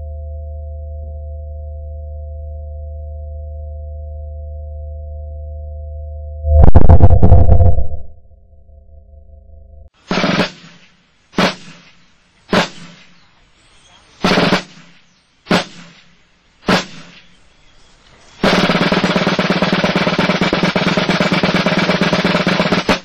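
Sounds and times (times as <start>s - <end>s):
snare drum roll: 10.1s - 13.1s, 14.2s - 16.1s, 16.7s - 17.3s, 18.4s - 23.0s
heavy drum strikes: 14.2s - 14.8s, 15.5s - 16.0s, 18.4s - 23.0s.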